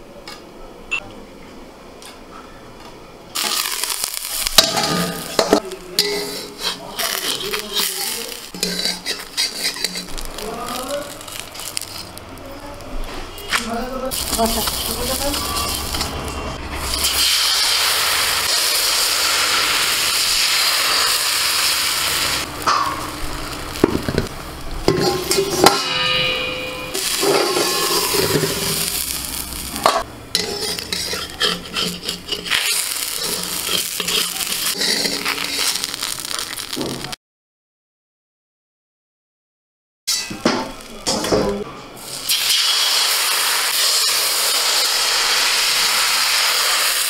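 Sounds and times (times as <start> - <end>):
metal plate lid clinking: 3.4 - 12.1, 24.9 - 29.2, 29.8 - 36.0
batter sizzling in a pan: 3.4 - 12.8, 14.1 - 16.2, 16.8 - 25.7, 26.9 - 37.2, 42.0 - 47.0.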